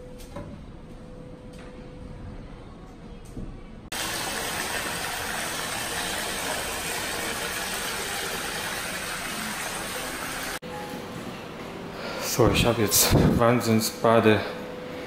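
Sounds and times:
water pouring into bathtub: 3.9s - 10.6s.

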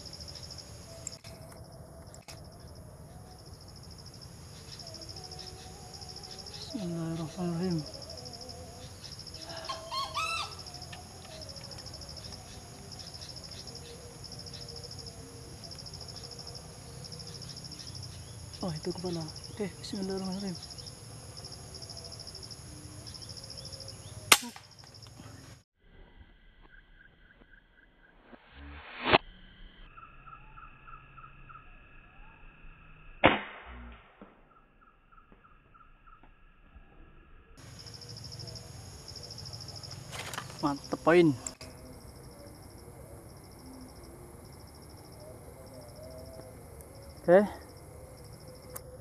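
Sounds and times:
insects trilling in pulsed bursts: 0.0s - 33.3s, 34.4s - 49.0s
sharp gunshot: 24.3s - 24.7s, 33.2s - 34.5s.

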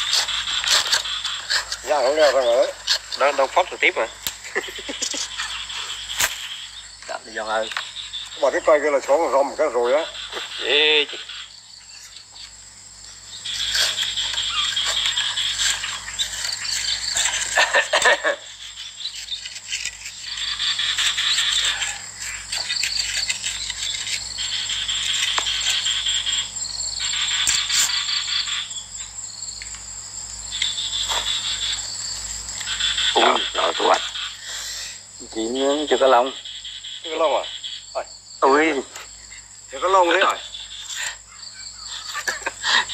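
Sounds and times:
insects buzzing: 0.0s - 42.9s
steady high whine: 24.4s - 37.5s.

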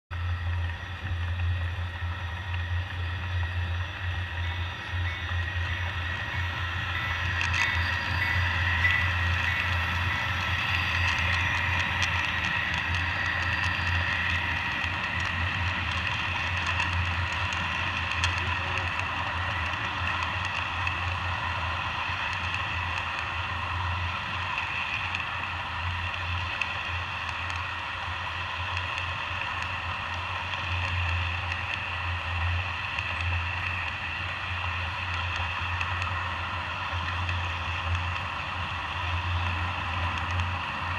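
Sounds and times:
constant low hum: 0.1s - 40.9s
model train wheels on rails: 0.1s - 40.9s.

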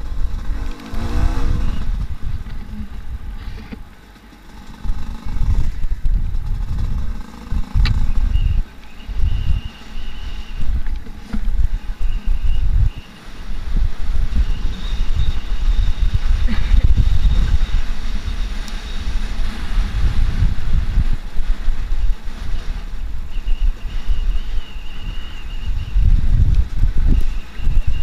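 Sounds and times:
motorcycle engine revving: 0.0s - 23.3s.

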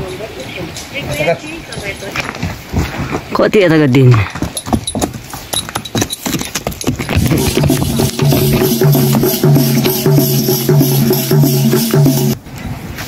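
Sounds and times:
low pitched repeating phrase: 7.3s - 12.4s.

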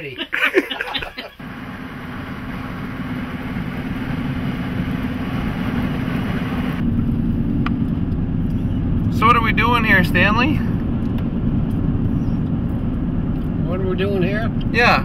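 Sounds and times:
burst of laughter: 0.2s - 1.4s
car engine and tyre noise: 1.4s - 15.0s.

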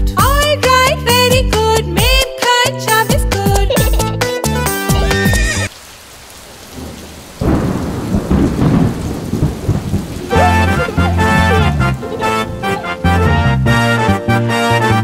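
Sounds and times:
children's music: 0.0s - 5.7s, 10.3s - 15.0s
rain hissing: 4.5s - 14.8s
thunder rumbling: 6.0s - 14.6s.

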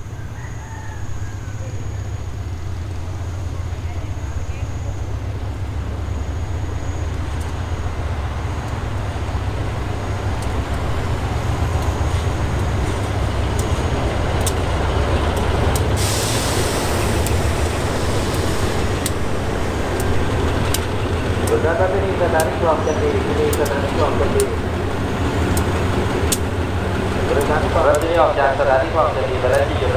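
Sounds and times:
locomotive engine running: 0.0s - 29.9s
sharp clicks: 11.7s - 16.0s, 18.3s - 19.3s, 19.9s - 21.6s, 22.2s - 22.7s, 23.4s - 24.6s, 25.4s - 26.6s, 27.3s - 28.2s
air brakes hissing: 15.7s - 19.8s.

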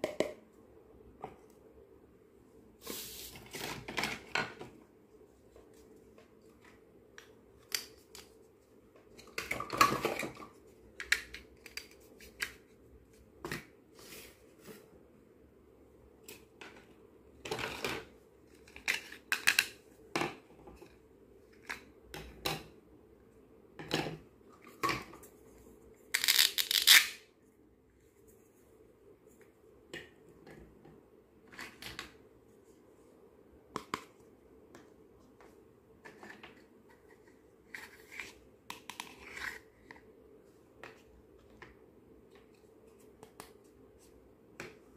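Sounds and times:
plastic toys clicking and clattering: 17.4s - 19.8s, 26.2s - 27.2s.

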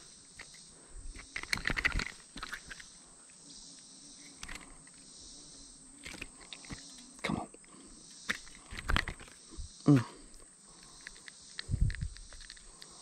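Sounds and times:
sharp clicks and rattles: 0.0s - 2.9s, 8.3s - 9.5s, 10.3s - 13.0s
insects chirring: 0.0s - 13.0s.

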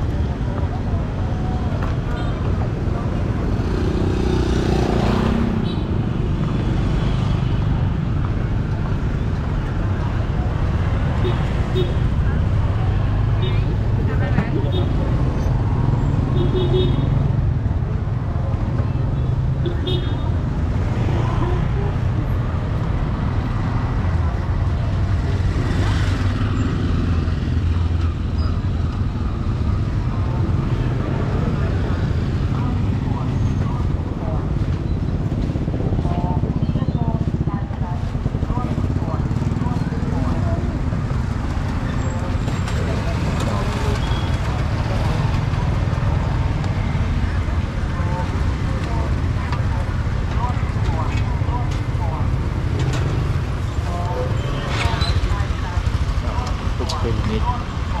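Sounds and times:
traffic rumble: 0.0s - 58.0s
motorbike passing close: 2.6s - 7.9s, 20.5s - 58.0s.

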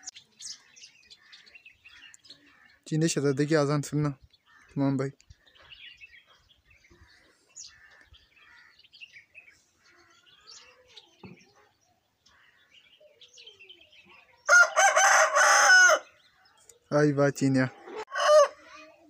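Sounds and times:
faint small bird chirps: 5.4s - 14.4s
rooster crowing: 14.5s - 16.1s, 18.0s - 18.7s.

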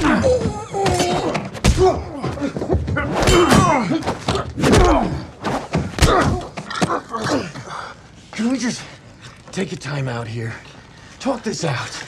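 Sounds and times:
men grunting and crying out: 0.0s - 7.8s.

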